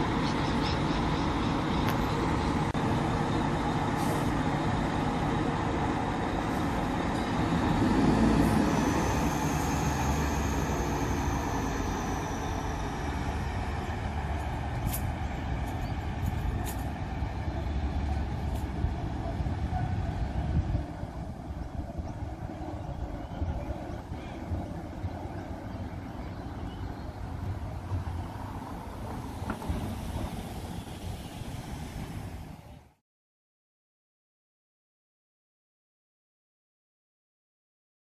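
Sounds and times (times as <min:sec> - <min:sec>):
diesel truck engine rumble: 0:00.0 - 0:33.0
trams on rails: 0:00.0 - 0:33.0
high whine: 0:07.1 - 0:16.4.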